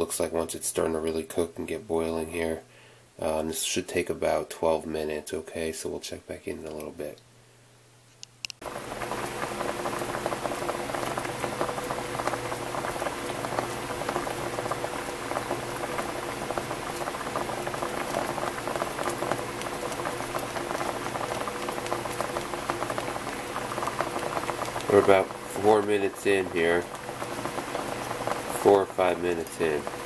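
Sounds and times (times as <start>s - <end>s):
faint steady hum: 0.0s - 30.0s
water boiling in a saucepan: 8.6s - 30.0s.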